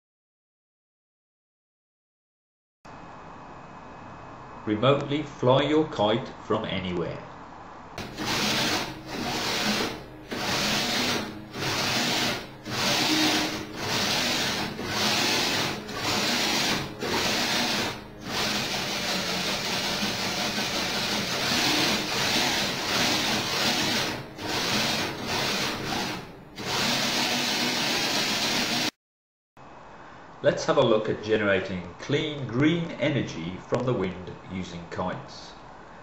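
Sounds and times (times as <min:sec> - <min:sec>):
electric winch motors running: 0:08.0 - 0:28.9.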